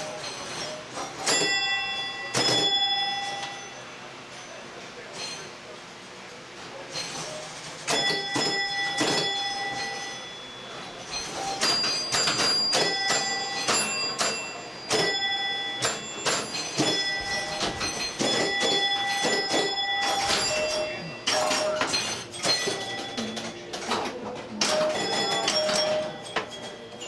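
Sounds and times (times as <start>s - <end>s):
bells ringing: 0.0s - 4.6s, 7.9s - 24.0s, 24.6s - 27.0s
mechanical relay clacks: 11.0s - 27.0s.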